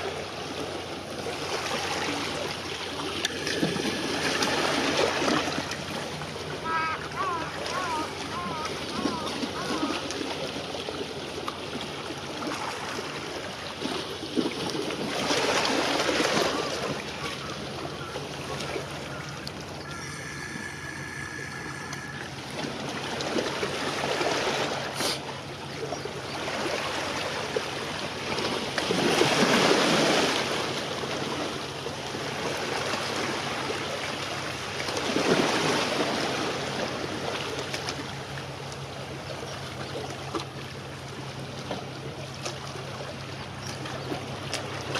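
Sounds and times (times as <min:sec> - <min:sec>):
waves washing against shore: 0:00.0 - 0:38.4
steady low hum: 0:16.7 - 0:26.2.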